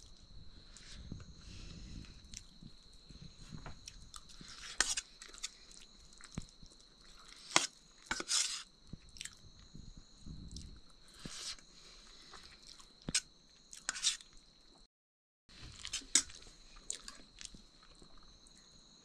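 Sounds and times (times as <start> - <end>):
person chewing and crunching: 3.8 - 9.4, 10.5 - 14.4, 15.7 - 18.2.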